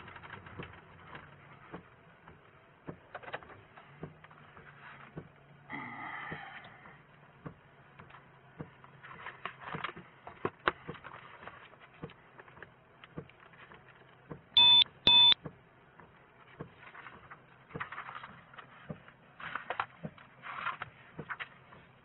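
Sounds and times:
papers rustling: 0.0s - 1.9s, 8.8s - 14.3s, 16.4s - 22.0s
low steady hum: 0.0s - 22.0s
loud electronic beeps: 14.6s - 15.4s.

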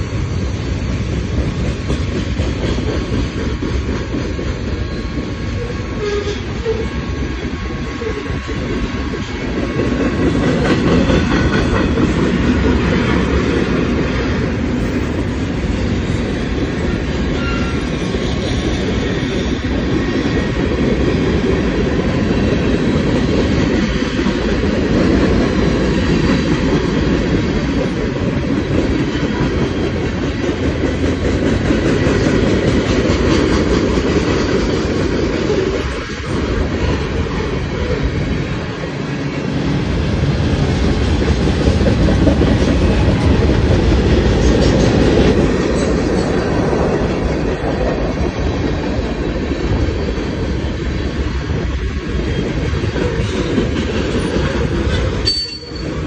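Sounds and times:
train wheels rumbling on rails: 0.0s - 56.0s
wheels clacking over rail joints: 40.0s - 56.0s.

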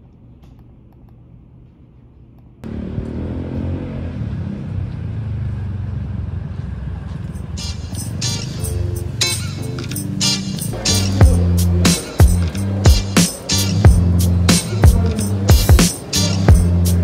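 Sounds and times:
city street traffic: 2.6s - 17.0s.

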